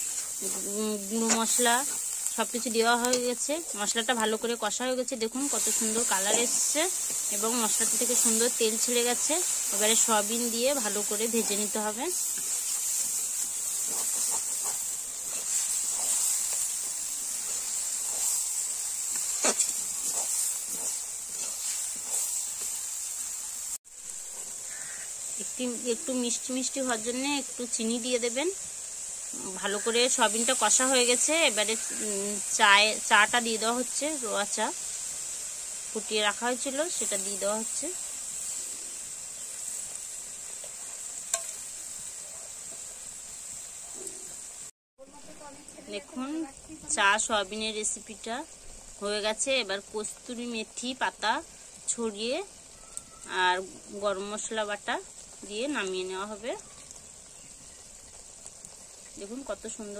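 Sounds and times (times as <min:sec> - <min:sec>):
metal spatula stirring: 0:00.0 - 0:03.8, 0:05.4 - 0:23.5, 0:36.9 - 0:43.0
curry sizzling in a pan: 0:00.0 - 0:59.9
steady high hiss: 0:00.0 - 0:59.9
metal spatula scraping a pan: 0:10.8 - 0:22.8.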